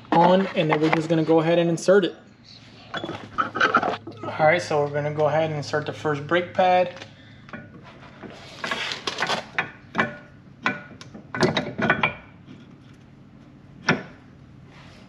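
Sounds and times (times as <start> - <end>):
clicks and knocks of hard parts: 8.7 - 13.0, 13.8 - 14.2.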